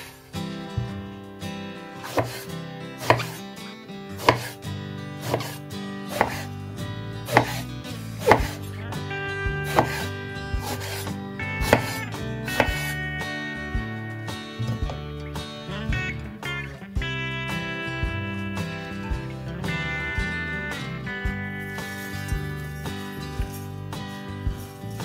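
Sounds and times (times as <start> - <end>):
knife cutting on board: 2.0 - 3.4, 4.2 - 4.6, 5.2 - 6.5, 7.2 - 8.6, 9.6 - 13.0.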